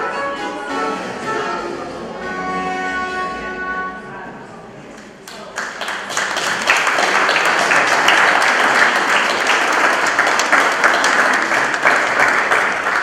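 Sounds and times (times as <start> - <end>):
audience applauding: 5.2 - 13.0.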